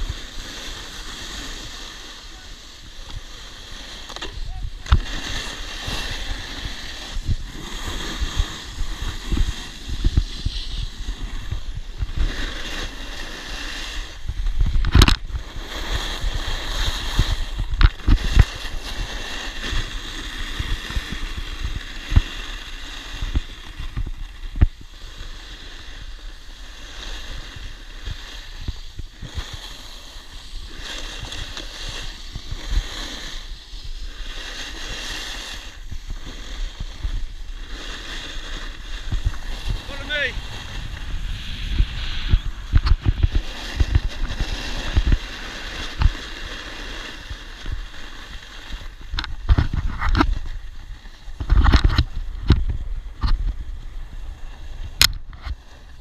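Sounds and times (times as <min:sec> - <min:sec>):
wind buffeting microphone: 0:00.0 - 0:22.4, 0:34.8 - 0:46.4
snowboard scraping over snow: 0:00.0 - 0:56.0.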